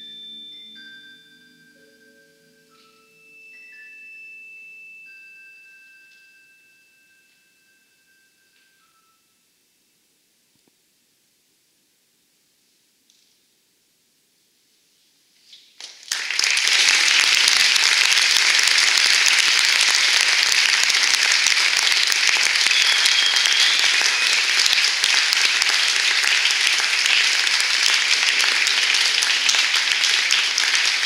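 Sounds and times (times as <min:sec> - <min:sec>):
audience applauding: 0:15.8 - 0:31.0.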